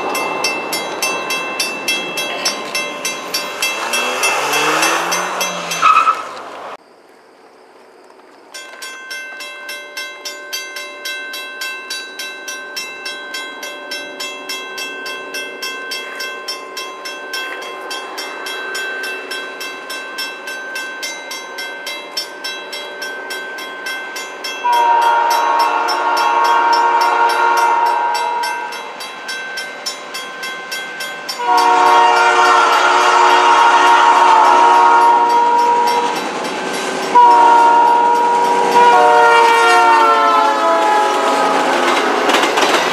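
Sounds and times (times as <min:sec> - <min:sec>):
railroad crossing bell ringing: 0:00.0 - 0:06.4, 0:08.5 - 0:42.9
locomotive air horn blasts: 0:24.6 - 0:28.8, 0:31.4 - 0:36.1, 0:37.1 - 0:41.9.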